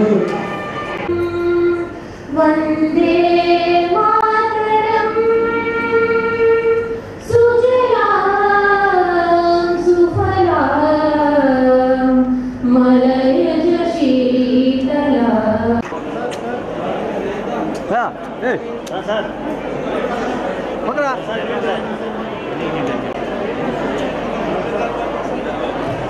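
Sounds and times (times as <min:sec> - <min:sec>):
woman and girls singing: 0:00.0 - 0:15.8.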